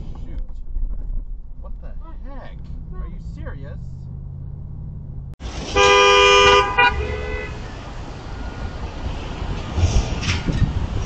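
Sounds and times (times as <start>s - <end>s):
street traffic noise: 0.0s - 11.0s
vehicle engine hum: 0.0s - 11.0s
car horn honking: 5.6s - 8.8s.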